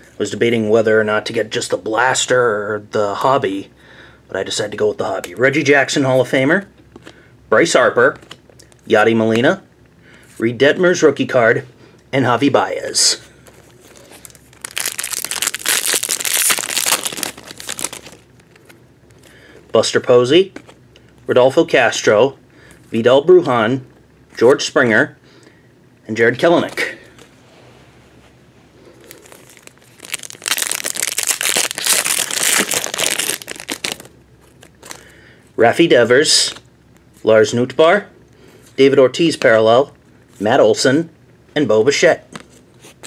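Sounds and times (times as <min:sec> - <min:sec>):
wrapper crinkling and tearing: 0:13.6 - 0:18.8, 0:29.0 - 0:35.1.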